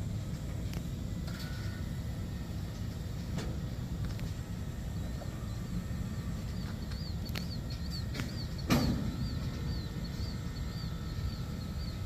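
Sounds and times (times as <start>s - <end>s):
faint high chirping: 5.0s - 12.0s
sharp clicks and bang: 6.9s - 9.6s.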